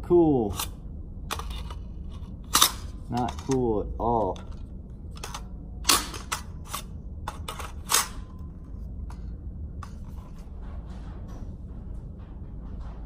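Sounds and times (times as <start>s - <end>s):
steady low hum: 0.0s - 13.0s
gun handling metallic clicks: 1.3s - 8.3s.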